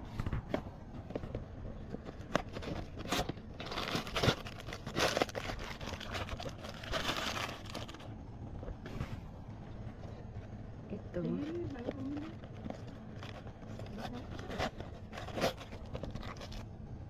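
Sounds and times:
packaging crinkling: 0:01.1 - 0:08.2, 0:11.4 - 0:16.8.

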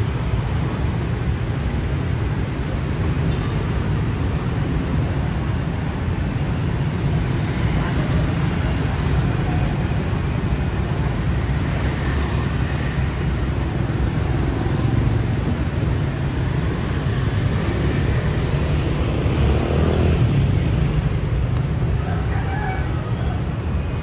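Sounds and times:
engine and tyre rumble: 0:00.0 - 0:24.0
motor scooters passing: 0:11.4 - 0:23.8.

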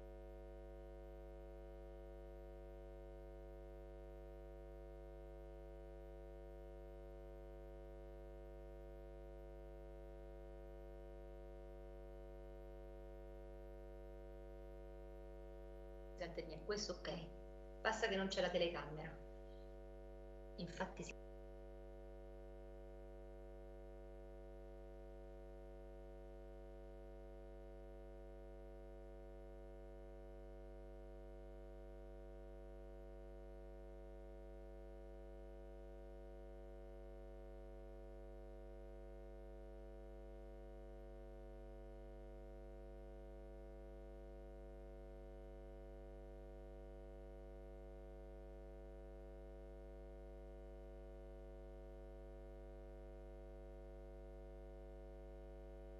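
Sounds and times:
electrical mains hum: 0:00.0 - 0:22.3.

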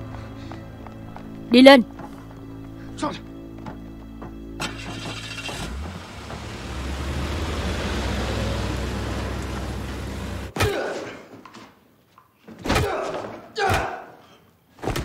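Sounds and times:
truck engine drone with hiss: 0:04.6 - 0:10.5.

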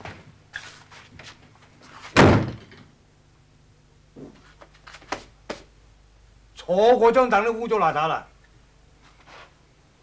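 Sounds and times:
door slamming shut: 0:02.2 - 0:02.8.

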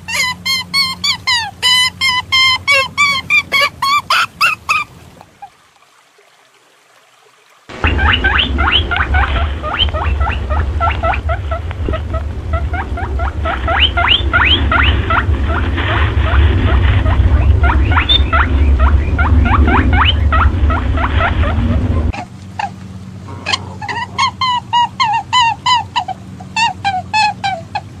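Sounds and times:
high squeaky chirps: 0:00.0 - 0:04.9, 0:07.8 - 0:21.7
steady low hum: 0:07.7 - 0:28.0.

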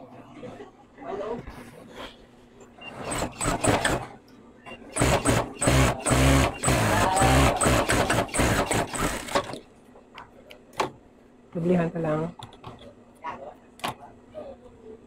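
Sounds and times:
sewing machine stitching: 0:02.9 - 0:04.1, 0:04.9 - 0:09.6.

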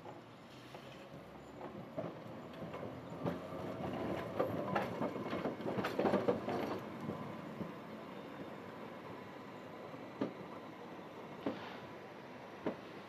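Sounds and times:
tram wheels clattering over track: 0:01.4 - 0:07.8.

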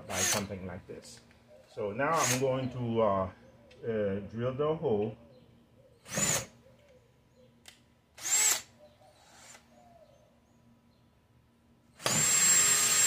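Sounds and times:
cordless drill whining: 0:00.0 - 0:00.5, 0:02.1 - 0:02.4, 0:06.0 - 0:06.6, 0:08.2 - 0:08.7, 0:12.0 - 0:13.0.

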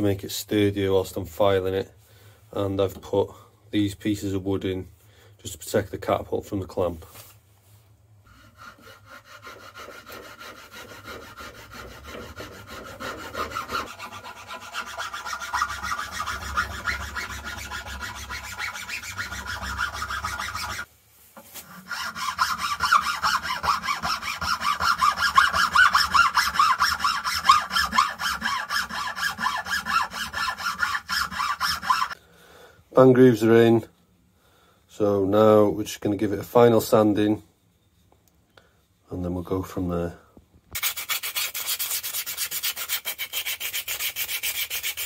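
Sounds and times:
file rasping on wood: 0:08.3 - 0:20.9, 0:21.6 - 0:32.2, 0:40.8 - 0:45.0.

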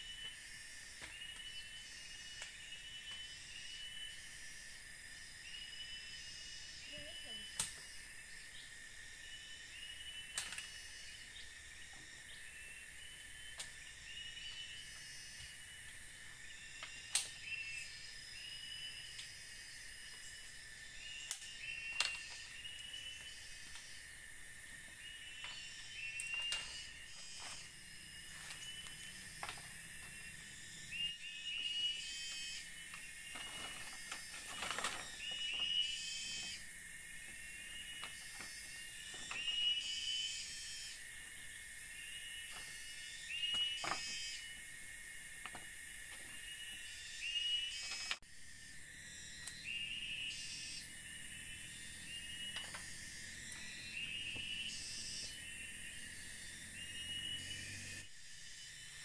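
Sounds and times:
high insect buzz: 0:00.0 - 0:59.0
bamboo poles knocking and clattering: 0:33.3 - 0:35.7.

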